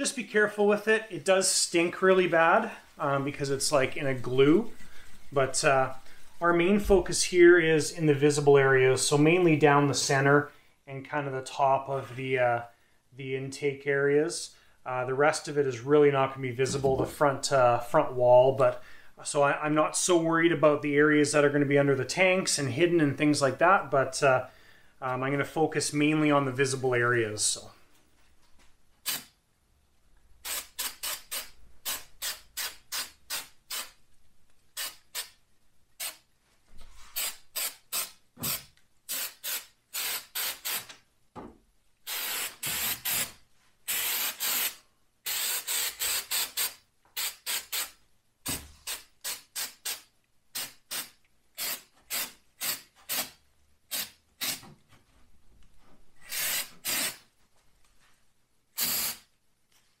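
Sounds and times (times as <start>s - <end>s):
spray paint hissing: 34.7s - 35.4s, 37.2s - 40.9s, 42.1s - 43.3s, 43.9s - 48.0s, 48.8s - 54.6s, 56.2s - 57.2s, 58.8s - 59.3s.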